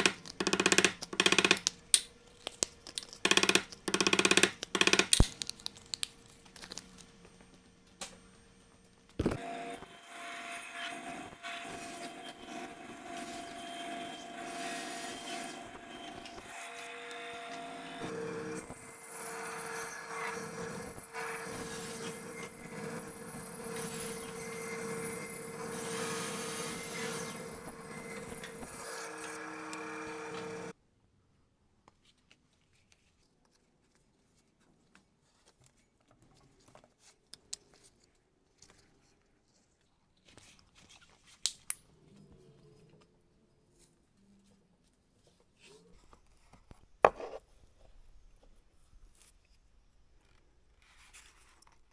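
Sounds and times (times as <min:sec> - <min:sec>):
band saw cutting: 0:09.4 - 0:30.7.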